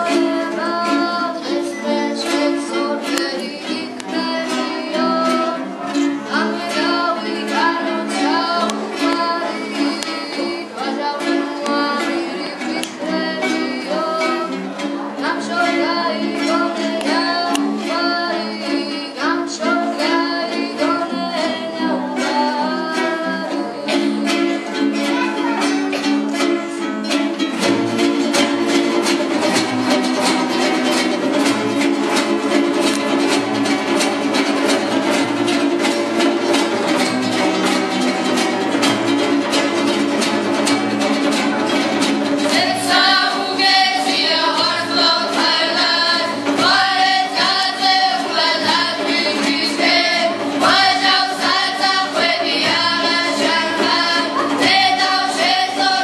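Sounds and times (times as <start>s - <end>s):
ensemble singing folk song: 0.0s - 56.0s
plucked lutes: 0.0s - 56.0s
strummed acoustic guitars: 0.0s - 56.0s
hand drums: 27.4s - 56.0s.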